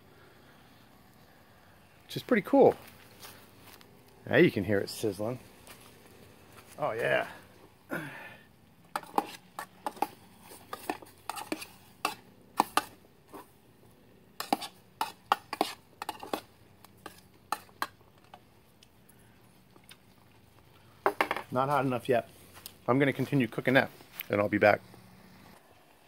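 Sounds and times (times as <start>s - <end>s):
metal spoon scraping metal cup: 9.0s - 12.9s, 14.4s - 16.4s.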